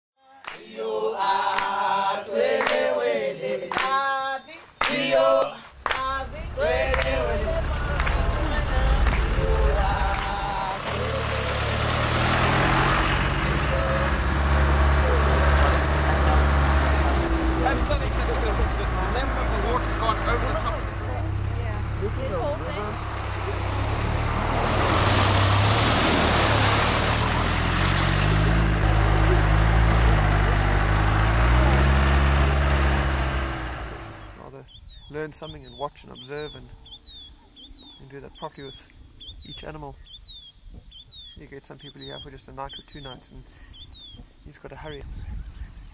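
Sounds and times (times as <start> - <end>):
group of voices singing: 0.2 - 12.6
sharp claps: 0.4 - 0.7, 1.5 - 1.8, 2.6 - 2.9, 3.7 - 4.0, 4.8 - 6.2, 6.8 - 7.3, 7.9 - 9.4, 10.1 - 11.0
vehicle engine rumble: 5.7 - 37.2
water rushing and splashing: 5.8 - 34.4.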